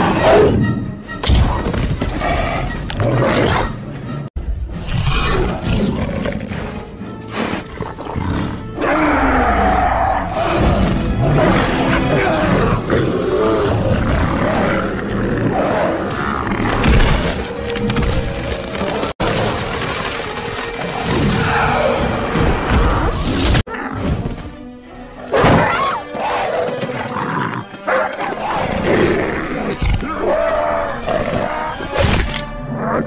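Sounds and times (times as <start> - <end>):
film fight music: 0.0 - 33.0.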